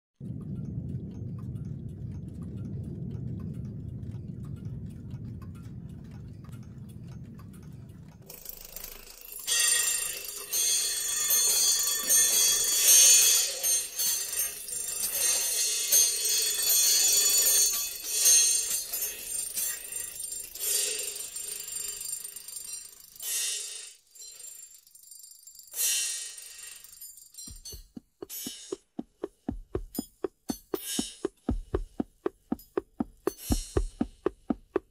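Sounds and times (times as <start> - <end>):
low rumble: 0.2 - 8.3, 27.5 - 34.9
alarm clocks ringing: 8.2 - 29.0.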